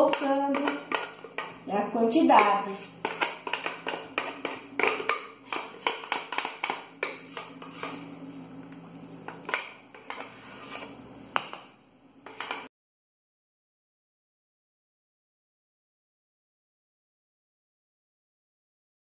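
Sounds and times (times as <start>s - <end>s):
spatula scraping plastic jar: 0.0s - 8.1s, 9.3s - 11.0s, 12.2s - 12.7s.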